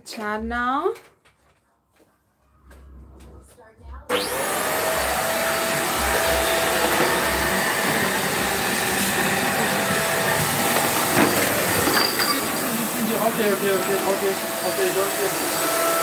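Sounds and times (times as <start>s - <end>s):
vacuum cleaner running: 4.1s - 16.0s.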